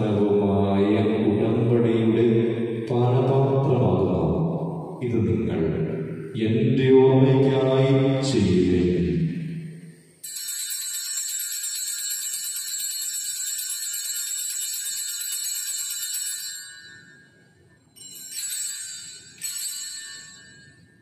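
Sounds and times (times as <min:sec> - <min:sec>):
small bells jingling: 0:09.8 - 0:21.0.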